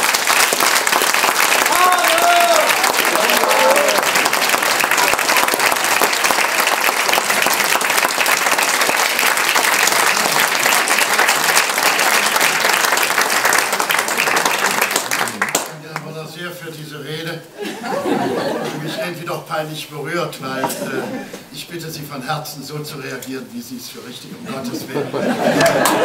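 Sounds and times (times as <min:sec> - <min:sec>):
audience applauding: 0:00.0 - 0:16.0, 0:25.3 - 0:26.0.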